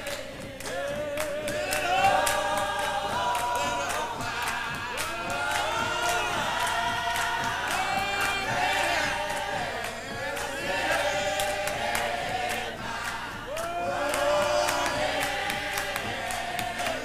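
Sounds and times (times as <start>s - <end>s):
choir singing a hymn: 0.0s - 17.0s
hand claps keeping time: 0.0s - 17.0s.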